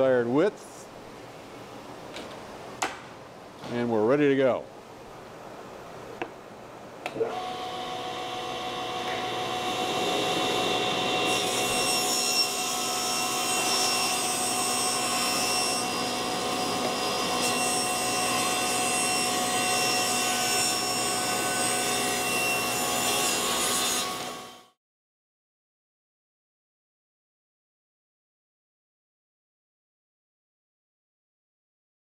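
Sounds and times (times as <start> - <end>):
saw blade cutting wood: 7.2 - 24.6
table saw blade whining: 7.2 - 24.7.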